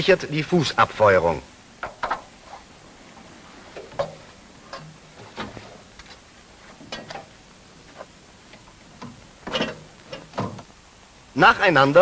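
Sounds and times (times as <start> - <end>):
metallic clicks and knocks: 6.8 - 7.4, 8.5 - 10.7.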